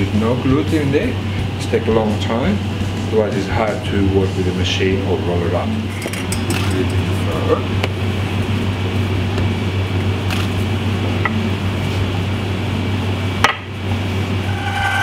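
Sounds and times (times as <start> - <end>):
low hum: 5.2 - 15.0.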